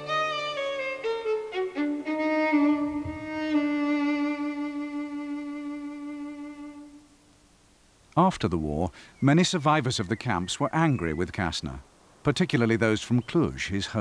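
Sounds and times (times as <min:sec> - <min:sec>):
violin melody with vibrato: 0:00.0 - 0:07.1.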